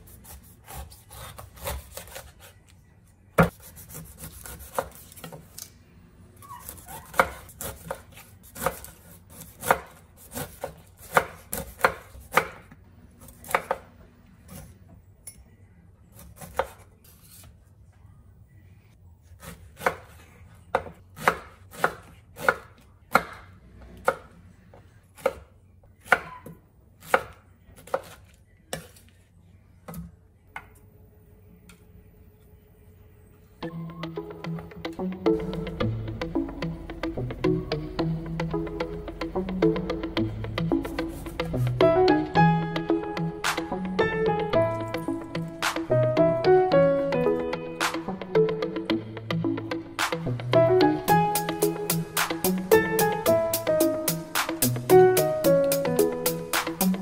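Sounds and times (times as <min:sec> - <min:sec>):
knife chopping pineapple on board: 0:00.2 - 0:02.5, 0:06.7 - 0:12.7, 0:19.4 - 0:23.4.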